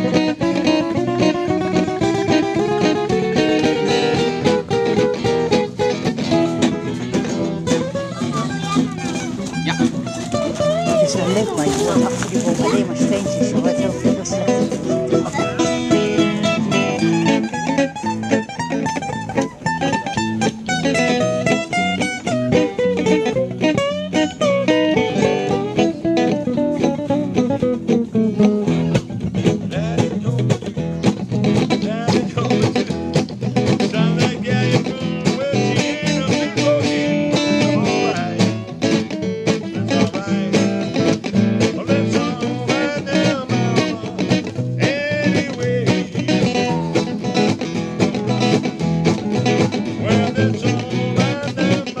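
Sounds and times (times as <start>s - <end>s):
acoustic guitar music: 0.0s - 52.0s
person singing: 33.7s - 38.8s, 39.5s - 47.4s, 49.9s - 52.0s.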